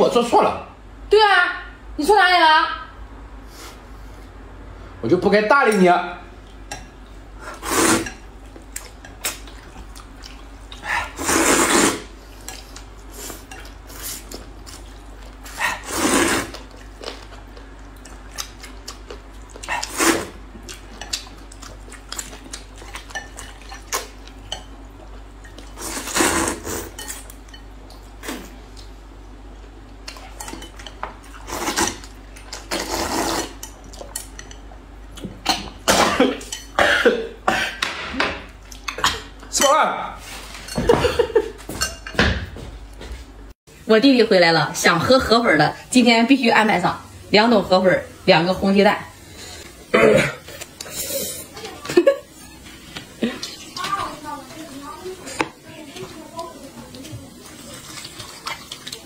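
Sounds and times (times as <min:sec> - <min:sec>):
noodles being slurped: 0:07.5 - 0:08.2, 0:11.0 - 0:16.8, 0:19.6 - 0:20.4, 0:25.7 - 0:27.0, 0:31.4 - 0:33.6
chopsticks and bowls clinking: 0:12.4 - 0:13.8, 0:20.7 - 0:26.2, 0:26.9 - 0:28.0, 0:30.0 - 0:32.7, 0:33.6 - 0:34.7, 0:35.4 - 0:36.8, 0:41.7 - 0:42.2.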